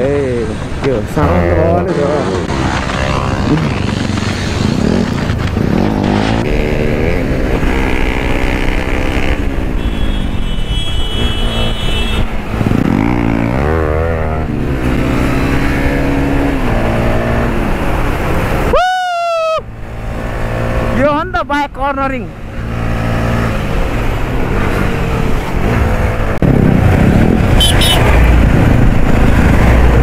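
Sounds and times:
motorcycle engine accelerating: 0:01.3 - 0:09.8.

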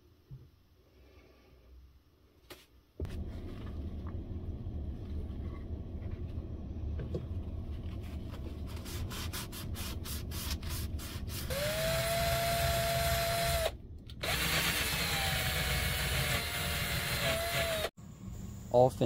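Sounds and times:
drill motor whine: 0:11.5 - 0:17.9.

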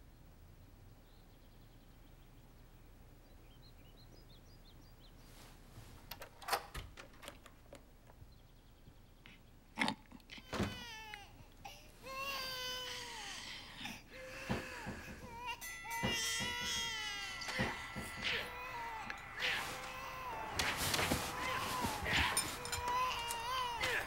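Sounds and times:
faint birdsong: 0:00.0 - 0:24.0
infant crying: 0:10.4 - 0:24.0
knocks: 0:14.2 - 0:24.0.

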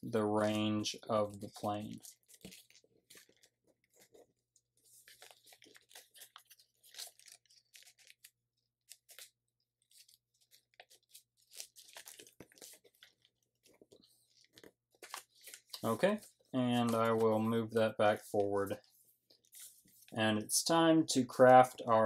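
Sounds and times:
paper rustling and crinkling: 0:00.4 - 0:20.2.

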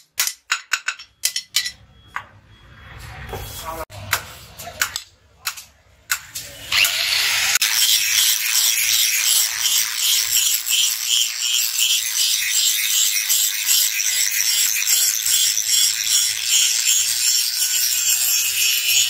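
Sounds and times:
angle grinder grinding metal: 0:06.4 - 0:19.0.

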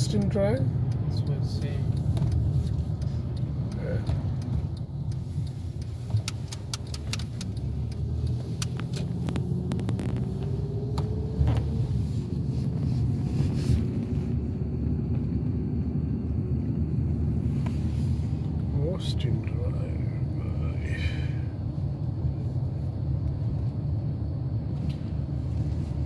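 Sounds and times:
car road and engine rumble: 0:00.0 - 0:26.0
light clicks and rattles: 0:00.1 - 0:11.8.

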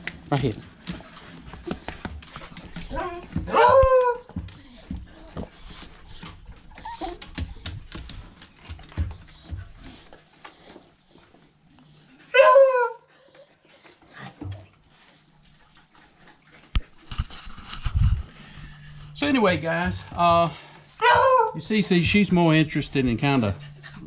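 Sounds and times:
dog barking: 0:03.0 - 0:04.3, 0:12.3 - 0:13.0, 0:21.0 - 0:21.6.

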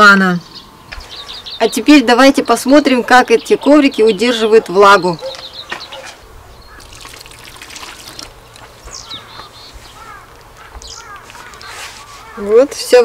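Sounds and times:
birds chirping: 0:00.0 - 0:13.0
water splashing onto floor mat: 0:06.8 - 0:08.8.

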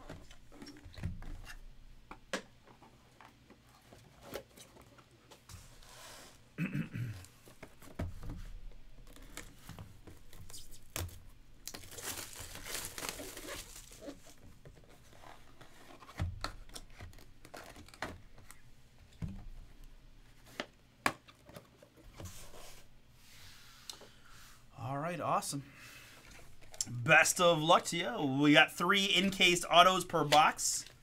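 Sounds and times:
plastic shrink wrap tearing: 0:10.5 - 0:14.4.

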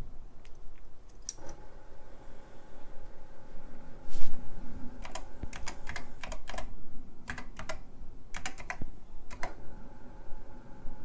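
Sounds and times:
keyboard typing clicks: 0:05.0 - 0:09.6.

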